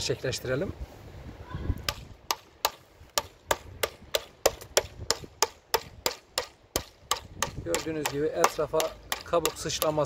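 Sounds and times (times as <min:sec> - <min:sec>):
hammer cracking nuts: 0:03.2 - 0:10.0.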